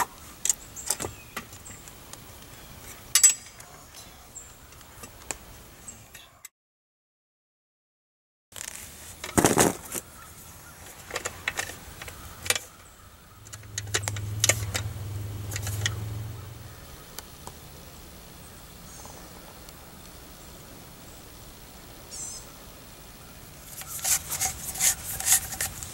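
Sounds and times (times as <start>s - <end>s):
low hum: 12.9s - 21.9s.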